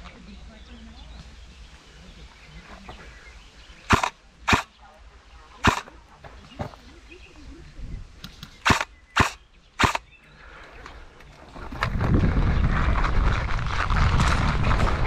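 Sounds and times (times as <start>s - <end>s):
airsoft gun shots: 3.9s - 4.7s, 5.6s - 6.0s, 8.6s - 10.1s
rumbling rustle on microphone: 10.7s - 15.0s.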